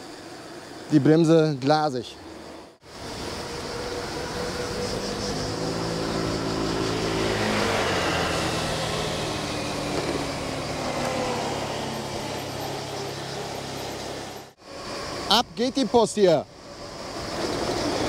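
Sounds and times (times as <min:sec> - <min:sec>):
steady rushing noise: 0:02.2 - 0:18.0.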